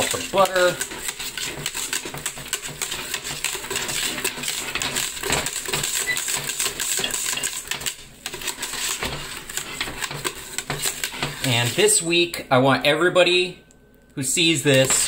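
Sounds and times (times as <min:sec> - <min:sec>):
whisk clinking against metal pot: 0:00.0 - 0:11.8.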